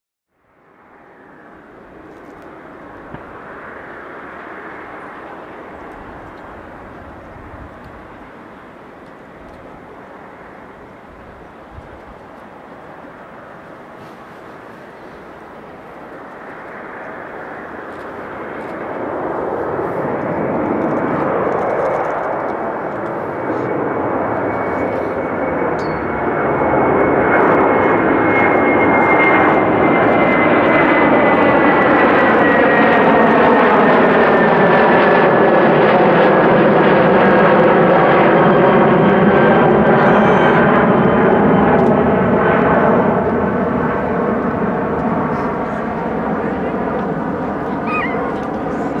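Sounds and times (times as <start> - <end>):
jet engines roaring: 0.5 - 49.0
high jet whine dropping in pitch: 7.8 - 33.2, 35.2 - 49.0.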